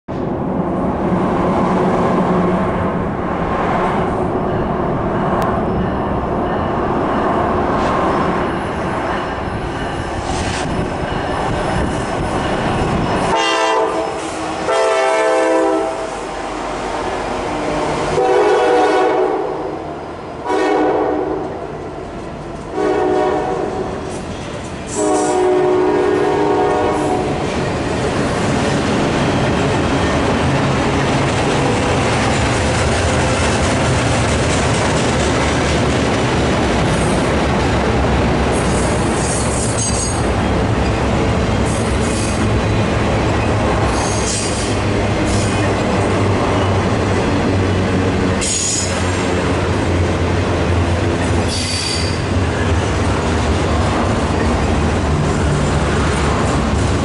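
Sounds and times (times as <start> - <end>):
train cars rumbling and clacking: 0.1 - 57.0
train wheel squeals: 7.9 - 14.5, 38.6 - 41.0, 41.7 - 42.4, 43.4 - 45.7, 48.4 - 49.1, 51.4 - 52.7
locomotive horn blasts: 13.2 - 16.4, 18.0 - 19.8, 20.4 - 21.6, 22.7 - 23.9, 24.9 - 27.3.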